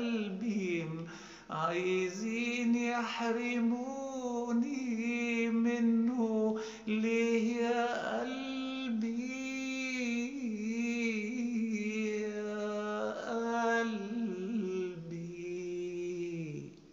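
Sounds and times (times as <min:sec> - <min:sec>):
man singing: 0:00.0 - 0:16.9.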